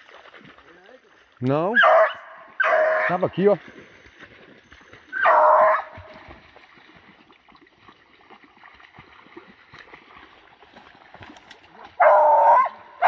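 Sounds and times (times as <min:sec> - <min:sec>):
dog barking loudly: 0:01.8 - 0:03.2, 0:05.2 - 0:06.1, 0:12.0 - 0:13.0.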